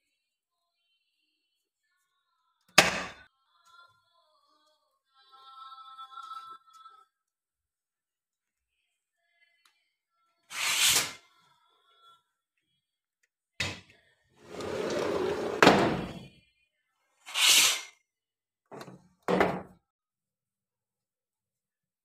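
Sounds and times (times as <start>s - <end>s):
window panes scraping on tracks: 14.4s - 16.2s.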